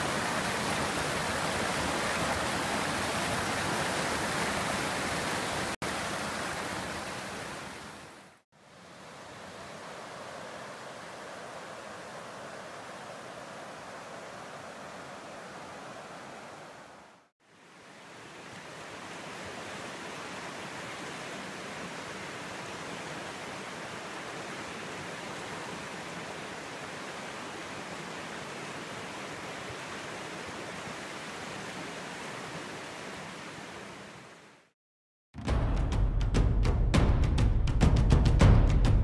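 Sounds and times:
river water rushing over rocks: 0:00.0 - 0:34.6.

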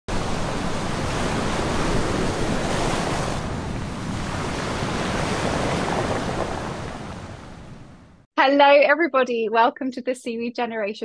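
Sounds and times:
waves breaking and foaming: 0:00.1 - 0:08.2.

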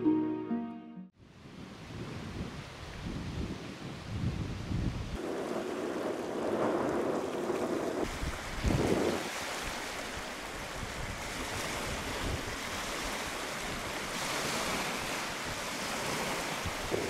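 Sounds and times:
wind: 0:01.2 - 0:17.0
water washing like small waves: 0:05.2 - 0:17.0.

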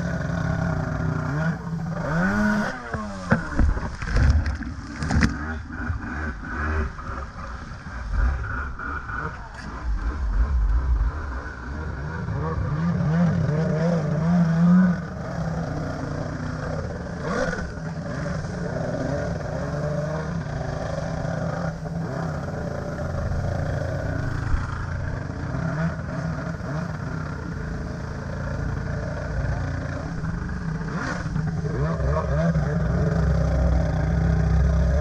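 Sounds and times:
jet ski engine revving: 0:00.0 - 0:35.0.

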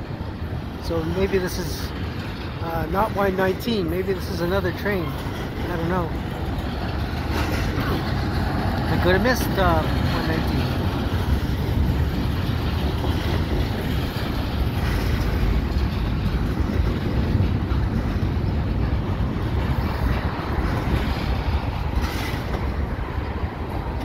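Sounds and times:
freight train rolling on rails: 0:00.0 - 0:24.0
wind noise on microphone: 0:05.0 - 0:24.0.

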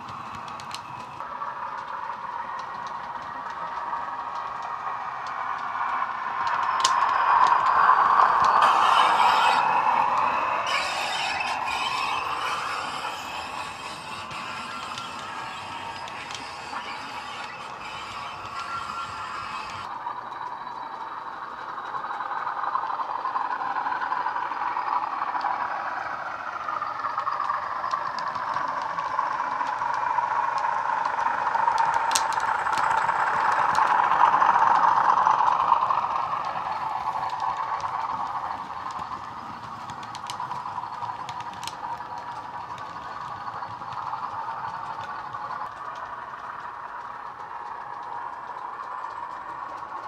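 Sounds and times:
sharp clicks: 0:30.6 - 0:50.0.

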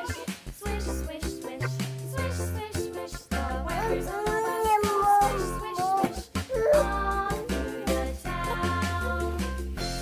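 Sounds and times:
children's background music: 0:00.0 - 0:10.0.

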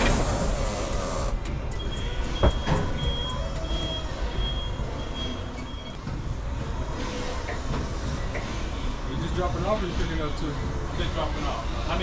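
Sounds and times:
backup alarm beeping: 0:01.7 - 0:06.0.

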